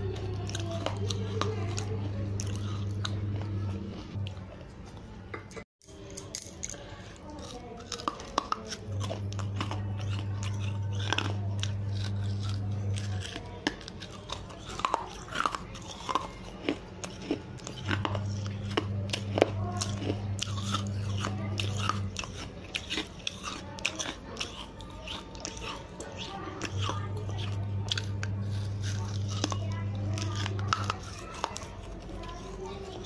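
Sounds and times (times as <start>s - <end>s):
low steady hum: 0.0s - 5.4s, 6.0s - 33.0s
clay shard being chewed: 7.2s - 33.0s.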